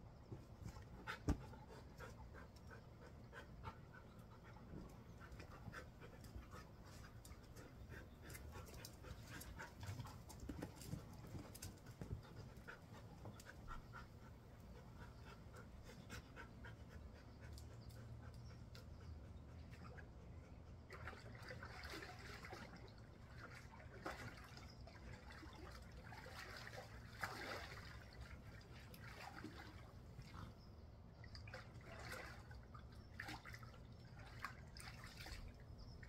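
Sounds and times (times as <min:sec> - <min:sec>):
dogs panting: 0:00.6 - 0:20.8.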